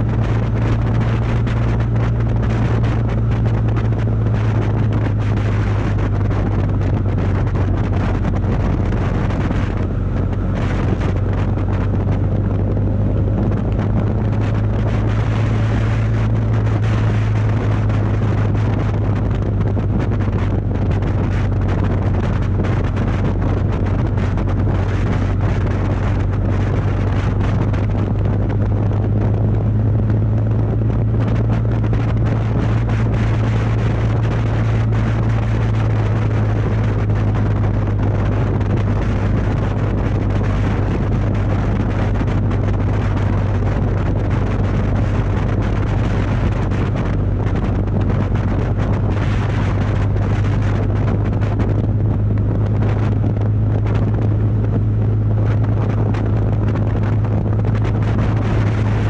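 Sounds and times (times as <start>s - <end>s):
motorcycle engine running: 0.0s - 59.0s
wind rushing over microphone: 0.0s - 59.0s.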